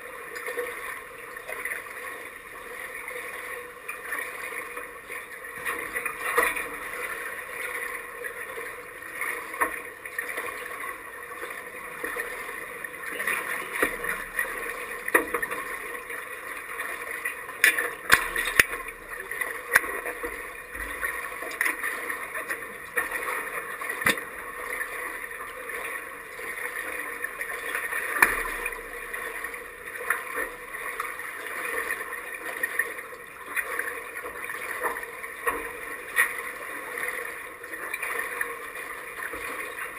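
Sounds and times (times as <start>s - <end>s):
pool water lapping and splashing: 0.0s - 39.9s
sharp splashes: 24.0s - 24.7s.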